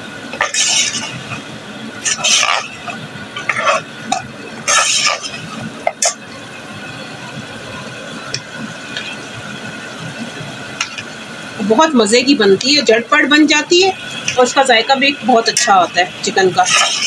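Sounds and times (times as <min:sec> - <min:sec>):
curry frying hiss: 0:00.0 - 0:17.0
spoon scraping metal pot: 0:00.4 - 0:06.2, 0:16.6 - 0:17.0.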